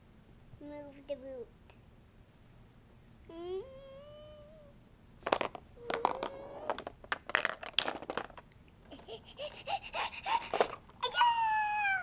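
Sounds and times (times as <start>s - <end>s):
child humming: 3.3s - 4.8s, 5.8s - 6.8s
plastic game pieces clattering: 5.2s - 8.4s.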